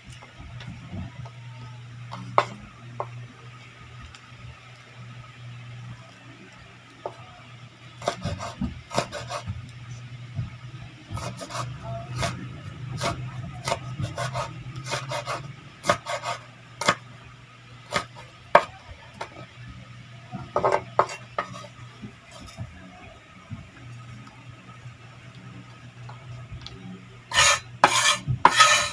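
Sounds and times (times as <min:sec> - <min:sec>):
knife chopping on wooden board: 0:08.0 - 0:09.5, 0:13.0 - 0:17.0, 0:17.9 - 0:18.7, 0:20.6 - 0:21.7, 0:27.4 - 0:28.9.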